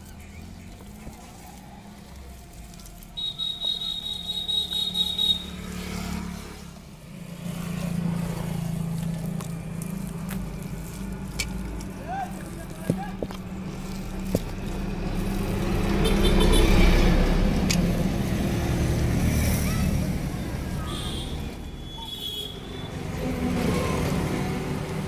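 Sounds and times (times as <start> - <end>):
vehicle engine running: 0.0 - 21.7.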